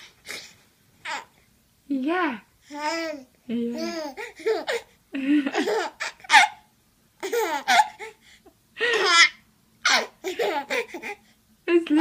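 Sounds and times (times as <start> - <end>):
baby laughing and squealing: 5.6 - 8.2, 8.9 - 11.2.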